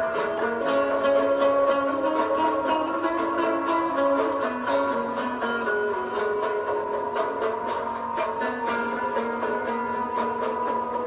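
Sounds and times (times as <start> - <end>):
plucked string instrument melody: 0.0 - 11.0.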